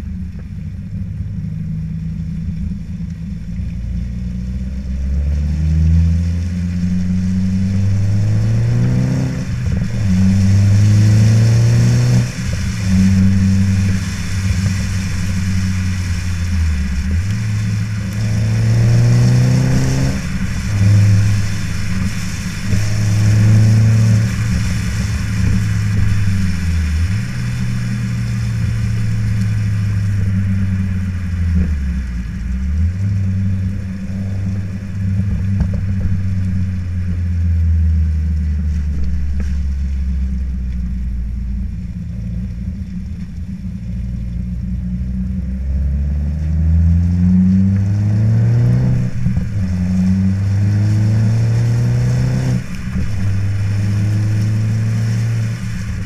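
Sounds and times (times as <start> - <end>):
car exhaust revving: 0.0 - 56.0.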